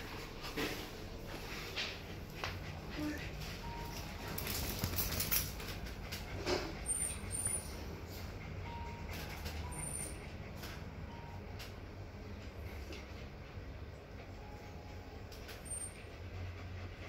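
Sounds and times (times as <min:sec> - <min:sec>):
thin high squeaks: 0:15.4 - 0:16.1.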